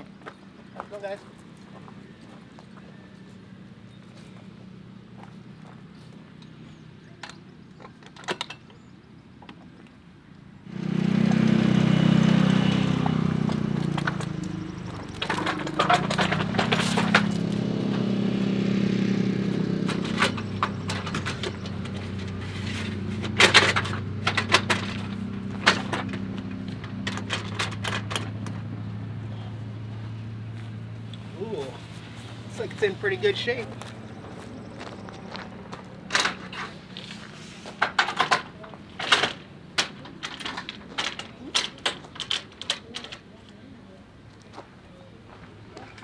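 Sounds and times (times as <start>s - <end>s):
awning metal clicks and clanks: 6.4s - 8.9s, 13.4s - 18.1s, 19.6s - 28.7s, 35.7s - 37.0s, 37.8s - 43.6s
engine-like drone: 10.6s - 41.2s.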